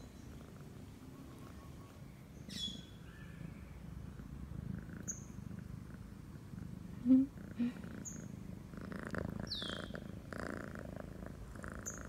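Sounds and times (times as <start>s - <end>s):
bird chirps: 0.0s - 3.8s, 9.5s - 10.0s, 11.8s - 12.0s
cat purring: 0.2s - 2.0s, 3.4s - 12.0s.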